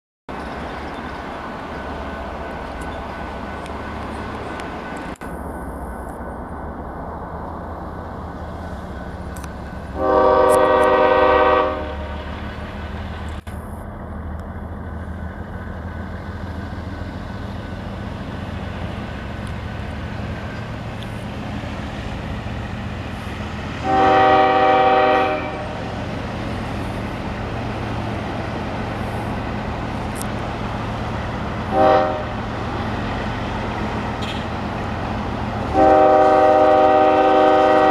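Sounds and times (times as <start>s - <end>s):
locomotive diesel rumble: 0.3s - 37.9s
locomotive air horn blasts: 10.0s - 12.2s, 23.8s - 25.8s, 31.7s - 32.4s, 34.2s - 34.5s, 35.7s - 37.9s.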